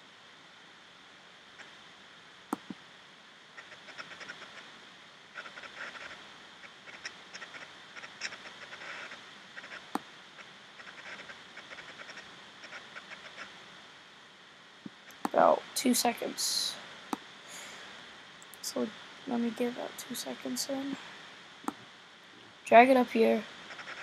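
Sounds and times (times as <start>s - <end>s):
faint steady hiss: 0.0s - 24.0s
computer mouse clicks: 2.6s - 2.8s
scratchy crackles: 6.8s - 13.5s.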